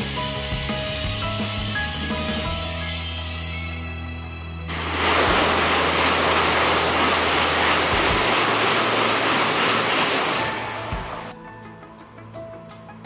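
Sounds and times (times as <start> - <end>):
high-speed train passing: 4.7 - 11.3.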